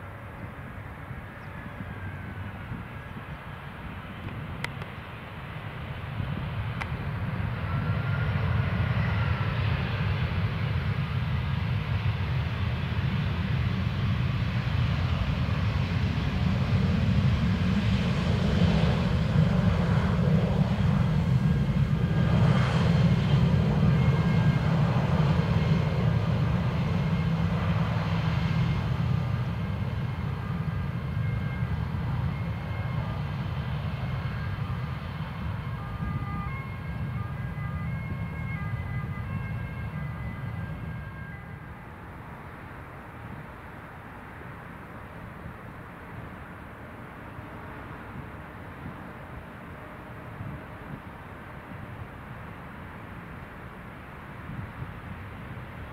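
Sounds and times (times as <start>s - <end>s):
jet engine rumble: 0.0s - 55.9s
thin engine whine: 6.9s - 43.6s.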